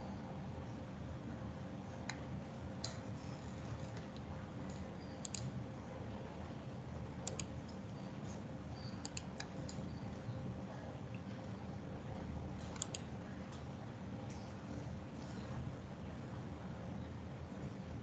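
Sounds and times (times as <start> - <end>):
low background hum: 0.0 - 18.0
mouse and keyboard clicks: 4.7 - 5.5, 7.2 - 7.8, 9.0 - 9.9, 12.7 - 13.1.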